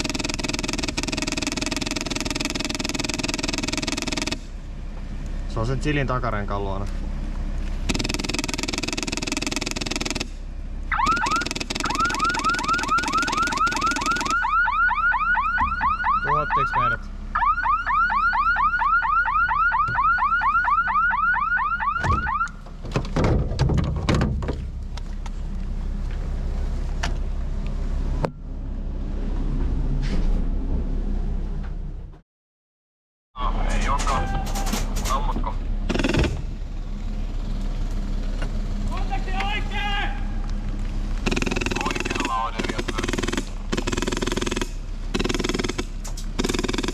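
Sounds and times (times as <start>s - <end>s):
vehicle engine rumbling: 0.0s - 32.2s, 33.4s - 46.9s
electronic alarm siren: 10.9s - 22.6s
loud knocks: 22.0s - 24.7s.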